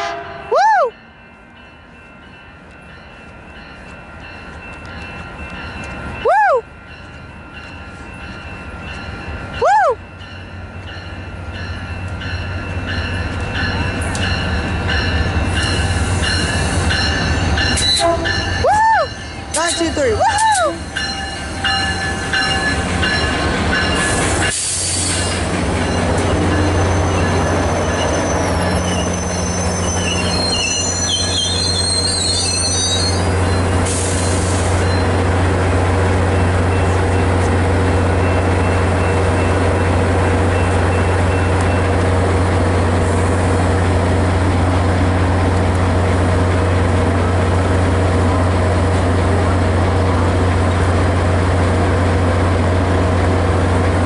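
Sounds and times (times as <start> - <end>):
diesel locomotive idling: 1.3 - 54.0
train wheels and brakes squealing: 11.6 - 35.2.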